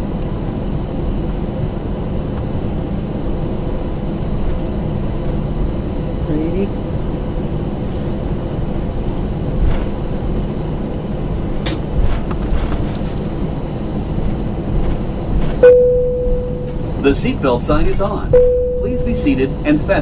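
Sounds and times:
aircraft engines rumbling: 0:00.0 - 0:20.0
cabin chime: 0:15.6 - 0:16.8, 0:18.4 - 0:19.6.

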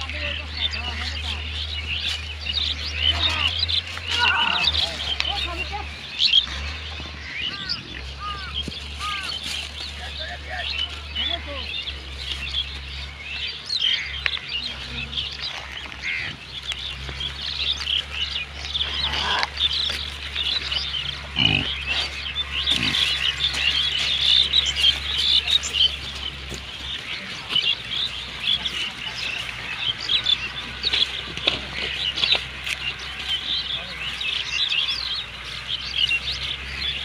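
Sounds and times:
small birds chirping: 0:00.0 - 0:37.0
pig grunts: 0:18.8 - 0:19.6, 0:21.2 - 0:23.3.

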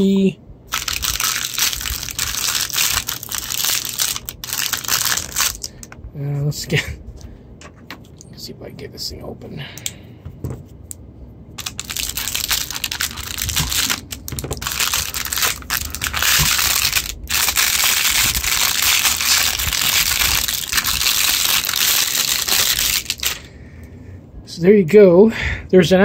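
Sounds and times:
plastic bag crinkling: 0:00.7 - 0:05.9, 0:11.6 - 0:23.5.

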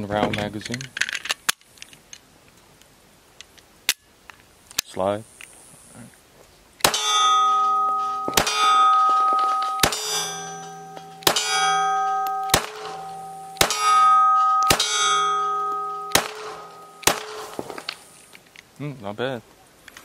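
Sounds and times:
pistol shots: 0:06.8 - 0:10.6, 0:11.2 - 0:18.0
steel plate target ringing: 0:06.8 - 0:18.2.

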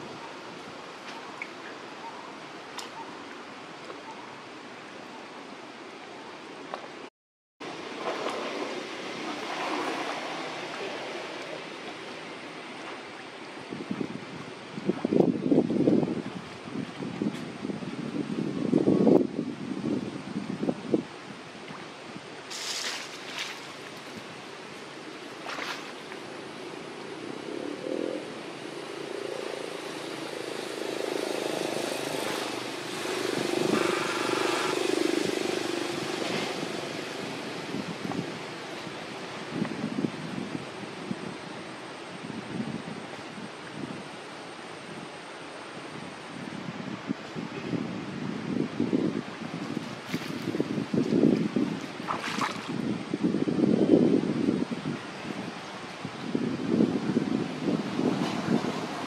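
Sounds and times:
water rushing: 0:07.6 - 0:15.2, 0:21.0 - 0:42.4, 0:48.8 - 0:53.3
light water splashes: 0:21.6 - 0:26.4, 0:49.6 - 0:52.8.

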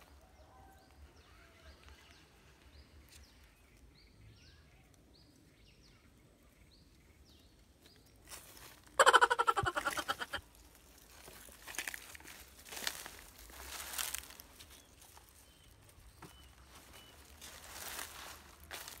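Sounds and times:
bird chirping: 0:09.0 - 0:10.4, 0:14.7 - 0:18.0.

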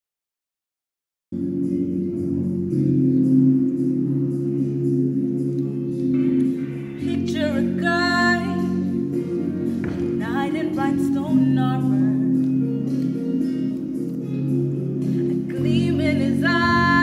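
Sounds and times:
held accompaniment chords: 0:01.4 - 0:17.0
girl singing with vibrato: 0:07.0 - 0:09.0, 0:10.2 - 0:12.4, 0:15.2 - 0:17.0.

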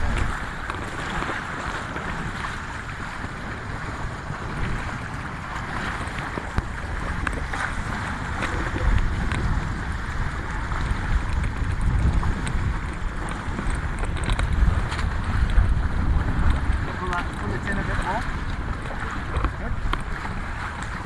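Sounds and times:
water splashing along hull: 0:00.0 - 0:21.0
wind buffeting microphone: 0:00.0 - 0:21.0.

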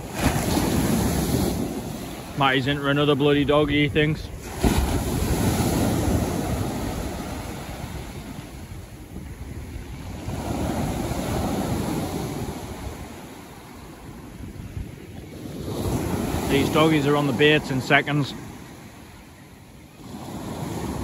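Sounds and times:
surf breaking on beach: 0:00.0 - 0:19.0, 0:20.0 - 0:21.0
wind buffeting microphone: 0:03.0 - 0:17.0.

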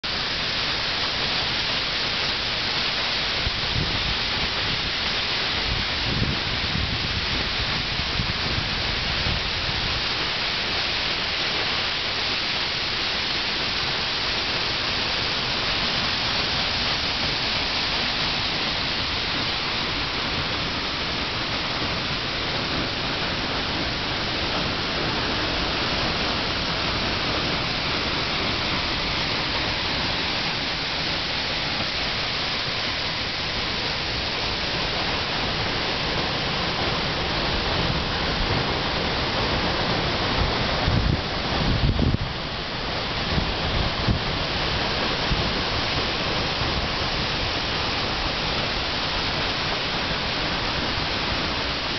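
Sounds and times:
waterfall rushing: 0:00.0 - 0:51.9
wind buffeting microphone: 0:05.6 - 0:10.2, 0:16.0 - 0:49.2.

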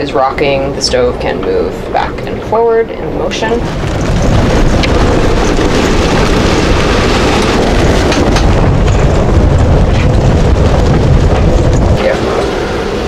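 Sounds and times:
hurricane wind blasting: 0:00.0 - 0:13.0
wind buffeting microphone: 0:00.0 - 0:13.0
rain driving against windows: 0:03.6 - 0:13.0.

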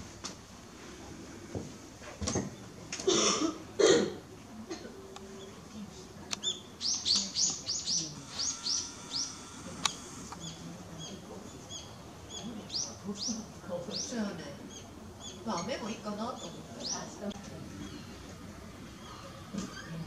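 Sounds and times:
small bird chirping: 0:06.4 - 0:09.6, 0:10.4 - 0:17.2.

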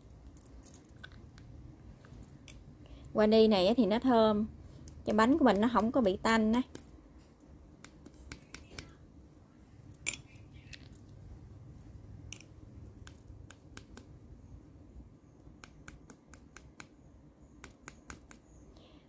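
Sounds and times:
plastic tubes clicking and tapping: 0:04.8 - 0:07.0, 0:07.8 - 0:09.0, 0:12.3 - 0:14.2, 0:15.5 - 0:17.0.

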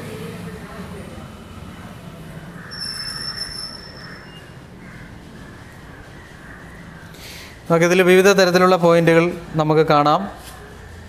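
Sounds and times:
high-pitched squeal: 0:02.6 - 0:06.4.

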